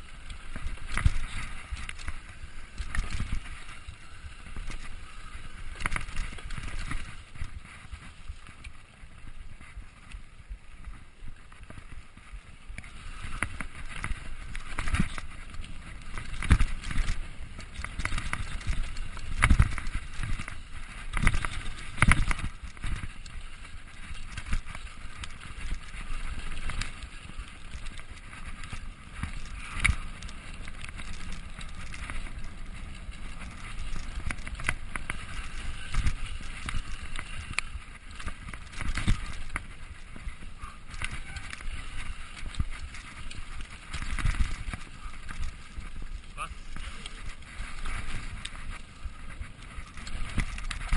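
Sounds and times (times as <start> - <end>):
bike tyres rushing on dirt: 0.0 - 50.9
bike clattering over bumps: 12.7 - 50.9.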